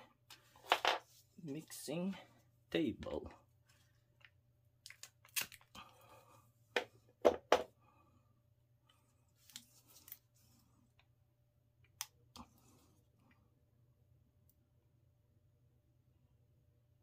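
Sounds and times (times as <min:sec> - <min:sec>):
soft rustling of packaging: 0:00.1 - 0:07.1, 0:08.8 - 0:11.2
plastic packaging clicks and snips: 0:04.8 - 0:05.7.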